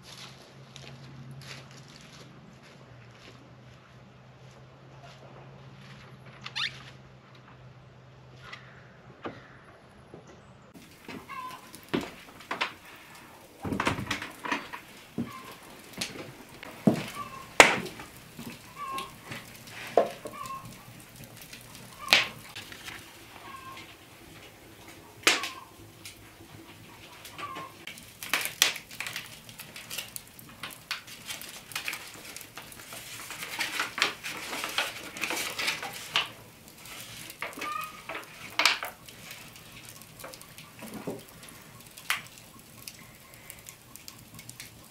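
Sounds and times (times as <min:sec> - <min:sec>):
floor creaks: 0:05.7 - 0:07.0, 0:10.8 - 0:24.5
stiff paper crinkling: 0:10.8 - 0:44.9.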